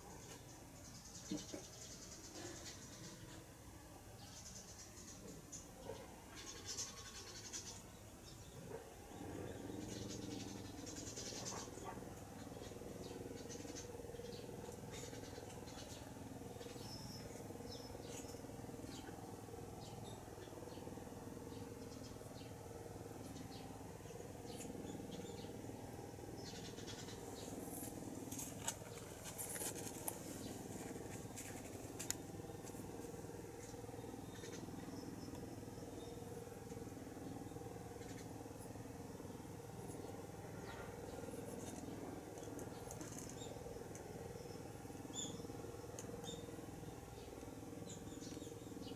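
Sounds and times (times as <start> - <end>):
kittens nursing and shuffling: 27.2 - 35.5, 40.9 - 44.8.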